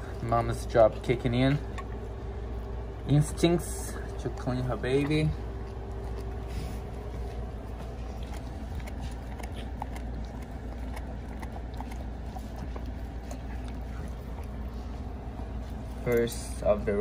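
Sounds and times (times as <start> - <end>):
steady low hum: 0.0 - 17.0
dog licking with wet clicks: 4.9 - 16.4.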